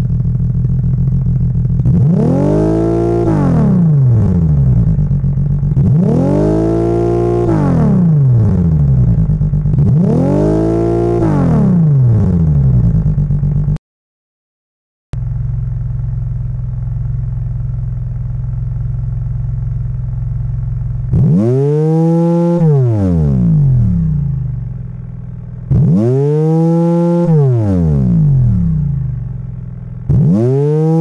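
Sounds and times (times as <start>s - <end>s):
synthesized engine exhaust revving: 1.6s - 13.4s, 21.0s - 24.9s, 25.6s - 31.0s.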